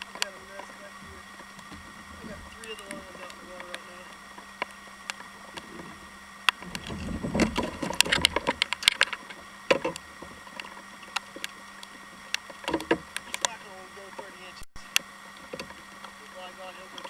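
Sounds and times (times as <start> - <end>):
low rumble: 0.0 - 10.5.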